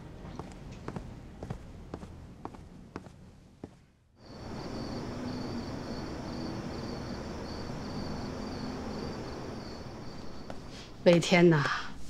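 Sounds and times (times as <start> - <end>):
soft background hiss: 0.0 - 12.0
crickets chirping: 4.2 - 11.0.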